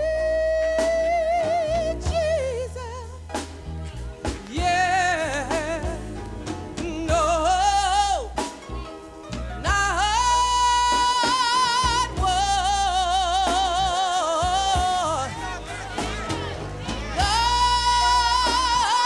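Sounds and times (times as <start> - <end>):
woman singing gospel: 0.0 - 3.2, 4.4 - 6.1, 6.8 - 8.5, 9.6 - 19.0
low sustained bass notes: 14.5 - 18.8.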